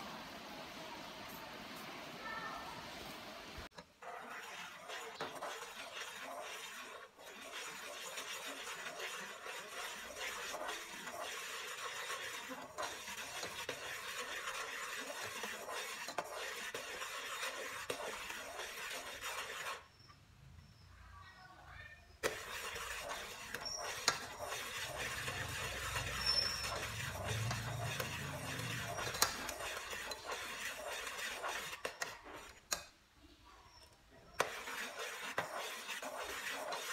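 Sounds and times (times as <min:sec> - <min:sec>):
metal ladle scraping pot: 0:03.7 - 0:19.9, 0:22.2 - 0:32.9, 0:34.4 - 0:36.9.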